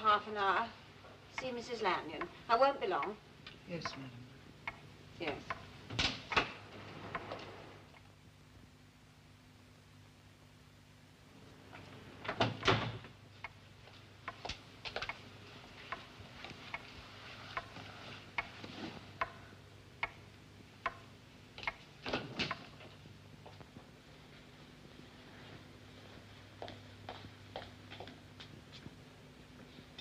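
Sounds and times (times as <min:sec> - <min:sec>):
low steady hum: 0:00.0 - 0:30.0
footsteps on hard floor: 0:23.4 - 0:29.0.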